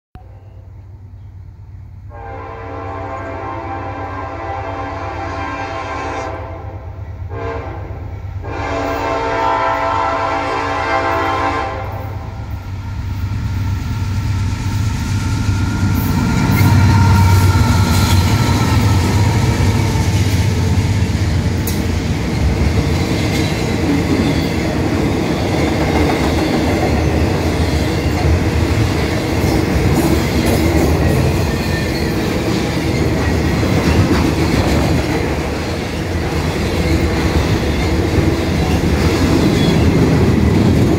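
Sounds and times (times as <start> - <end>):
diesel locomotives passing: 0.2 - 40.9
train horn blasts: 2.1 - 12.6
train wheels clicking over rail joints: 12.6 - 40.9.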